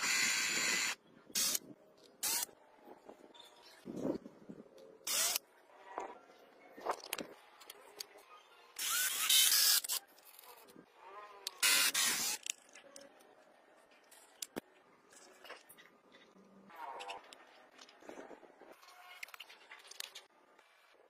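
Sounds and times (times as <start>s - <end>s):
small plastic parts clicking: 11.4s - 15.8s.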